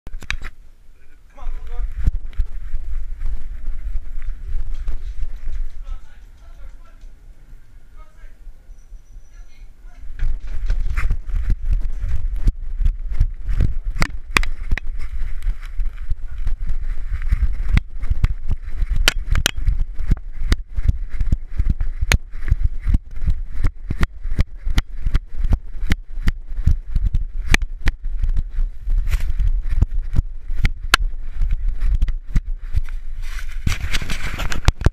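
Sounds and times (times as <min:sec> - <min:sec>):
rubbing and wind on microphone: 0:00.1 - 0:34.9
sharp knocks and clicks: 0:19.0 - 0:19.7.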